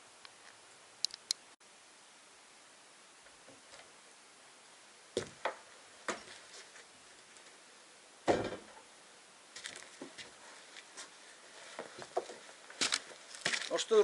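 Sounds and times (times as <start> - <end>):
footsteps on wooden plank floor: 5.2 - 6.9, 9.6 - 13.8
loud wooden thump: 8.2 - 8.8.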